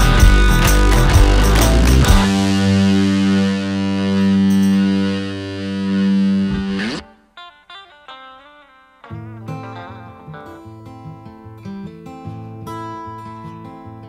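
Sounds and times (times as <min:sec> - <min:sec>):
distorted electric guitar chord: 0:00.0 - 0:07.6
guitar picking: 0:00.0 - 0:14.0
guitar strumming: 0:00.0 - 0:14.0.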